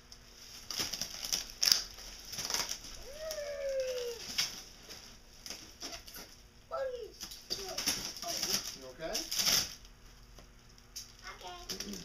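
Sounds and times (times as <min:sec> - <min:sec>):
packaging rustling and crinkling: 0:00.1 - 0:06.3, 0:07.2 - 0:10.0, 0:11.4 - 0:12.0.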